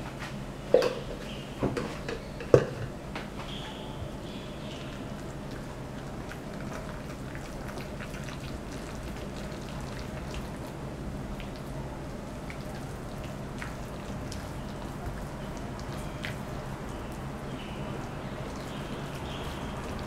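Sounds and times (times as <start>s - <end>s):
spatula mashing wet mixture in bowl: 4.8s - 10.6s.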